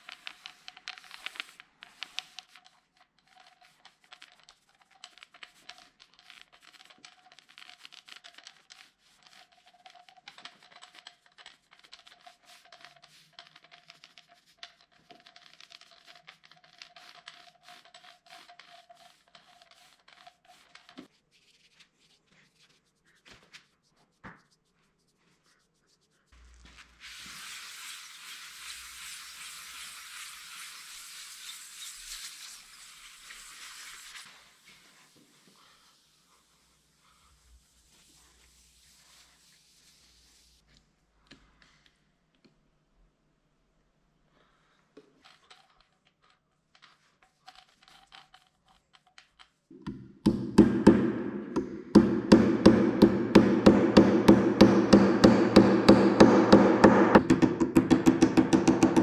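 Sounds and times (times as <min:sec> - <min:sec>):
paint roller sticky crackle: 0:00.0 - 0:40.7, 0:45.2 - 0:49.7
sanding block rasping on wood: 0:52.0 - 0:57.2.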